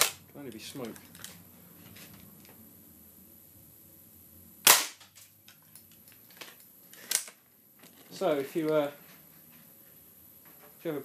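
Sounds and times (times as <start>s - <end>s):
air rifle shot: 4.7s - 5.0s.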